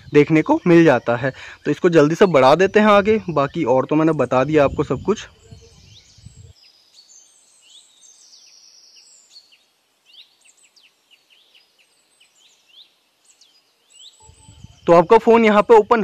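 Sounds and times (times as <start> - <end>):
high whistled bird notes: 0.0 - 6.5, 13.9 - 16.0
faint bird chirps: 0.0 - 16.0.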